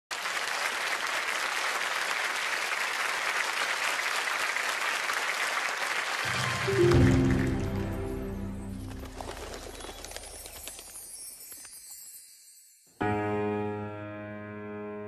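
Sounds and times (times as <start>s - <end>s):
audience applauding: 0.1s - 11.8s
low piano notes: 6.3s - 9.3s.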